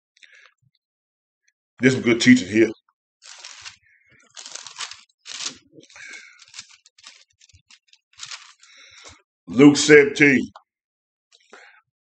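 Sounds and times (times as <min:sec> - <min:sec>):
paper pages rustling: 0:03.2 - 0:09.2.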